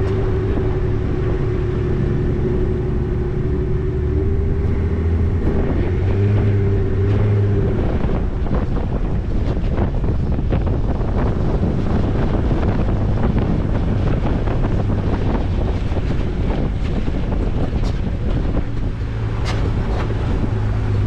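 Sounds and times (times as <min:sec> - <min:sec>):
tyres rolling on dirt trail: 0:00.0 - 0:21.0
vehicle engine running: 0:00.0 - 0:21.0
wind buffeting microphone: 0:00.0 - 0:21.0.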